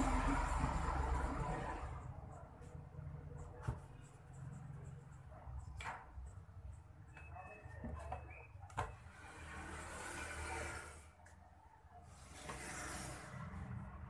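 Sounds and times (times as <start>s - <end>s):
plastic pipe scraping and rustling: 12.2s - 13.6s.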